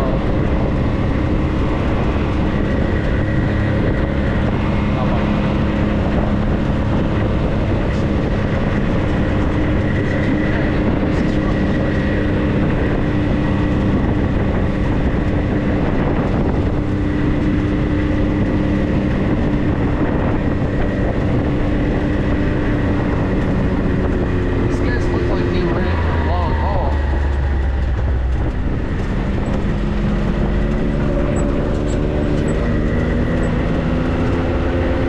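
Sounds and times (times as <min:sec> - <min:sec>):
vehicle engine droning: 0:00.0 - 0:35.0.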